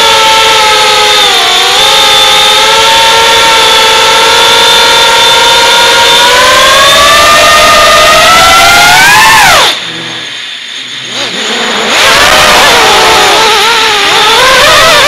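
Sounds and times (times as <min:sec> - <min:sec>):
drone motors and propellers whining: 0:00.0 - 0:15.0.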